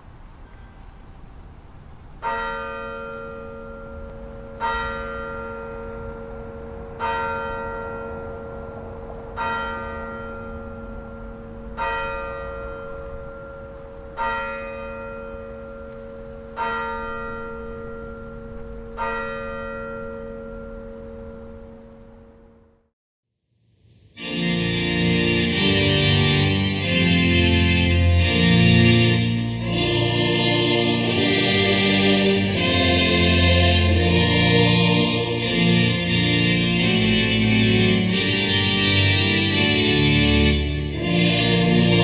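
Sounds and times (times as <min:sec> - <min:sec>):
church bell tolling: 0:02.2 - 0:22.7.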